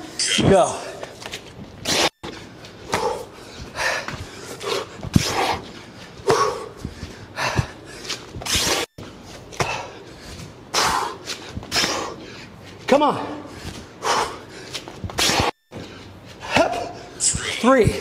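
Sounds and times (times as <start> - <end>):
man breathing hard: 2.2 - 15.1.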